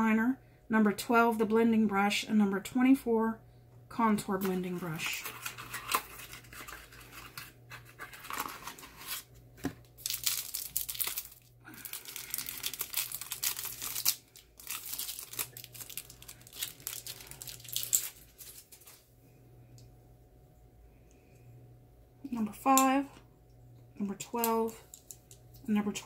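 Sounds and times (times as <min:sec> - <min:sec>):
plastic packaging crinkling: 0:04.9 - 0:19.1.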